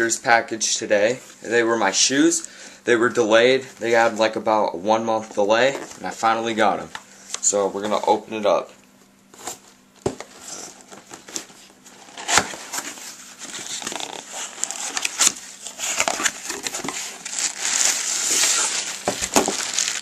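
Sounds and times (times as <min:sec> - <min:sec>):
plastic bag crinkling: 0:10.4 - 0:20.0.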